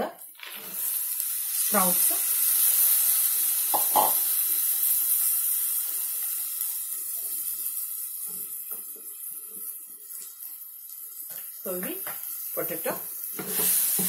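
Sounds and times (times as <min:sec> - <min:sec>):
food sizzling in hot oil: 0:00.0 - 0:14.0.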